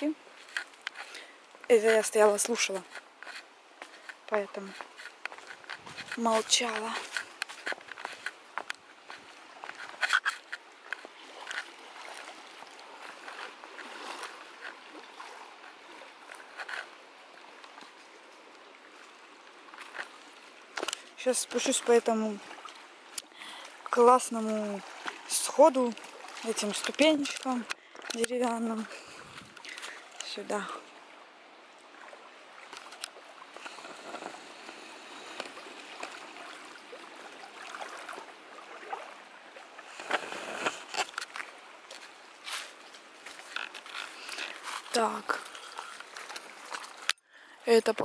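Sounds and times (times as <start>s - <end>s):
small waves lapping on shore: 0.0s - 48.0s.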